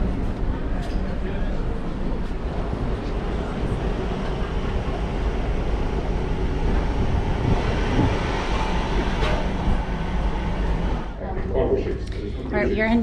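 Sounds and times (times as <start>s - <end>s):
wind buffeting microphone: 1.8s - 11.1s.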